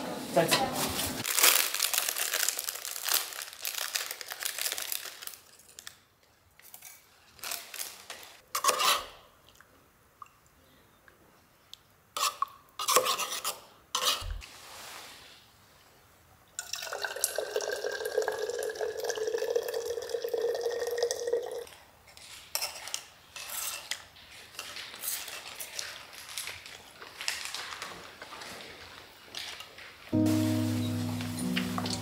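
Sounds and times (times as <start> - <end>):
water filling a bottle: 16.6 - 21.6.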